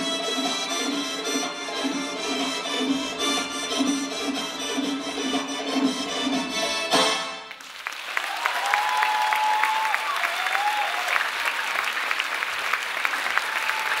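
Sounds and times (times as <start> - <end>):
audience applauding: 7.5 - 14.0.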